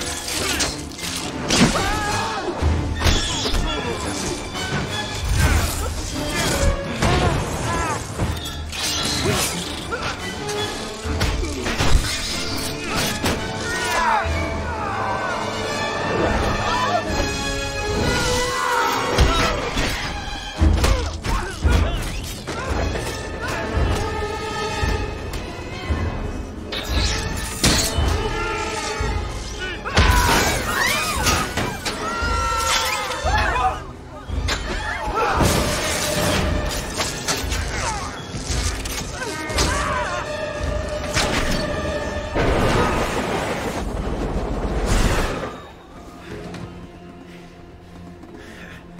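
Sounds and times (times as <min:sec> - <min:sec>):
dramatic orchestral music: 0:00.0 - 0:48.9.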